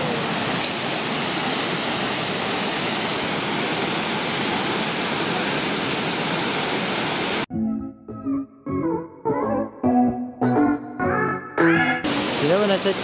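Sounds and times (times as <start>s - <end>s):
waterfall rushing: 0.0s - 7.5s, 12.0s - 13.0s.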